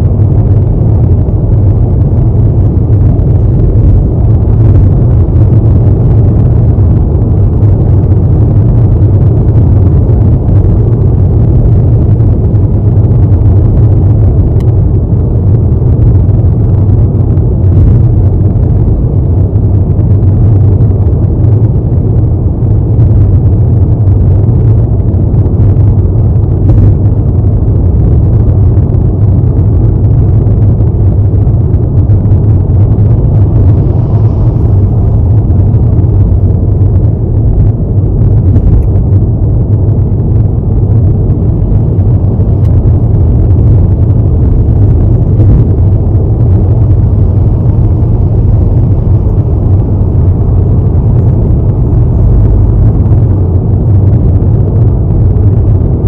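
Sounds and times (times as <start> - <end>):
car engine idling: 27.9 - 54.0.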